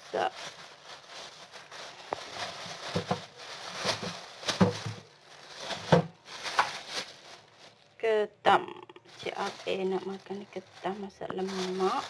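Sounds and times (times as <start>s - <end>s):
plastic bag rustling: 0.0s - 8.1s, 9.0s - 12.0s.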